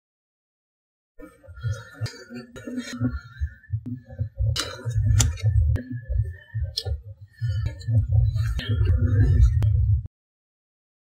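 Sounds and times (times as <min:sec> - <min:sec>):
wind rumble: 0:01.5 - 0:10.1
microphone handling noise: 0:01.6 - 0:10.1.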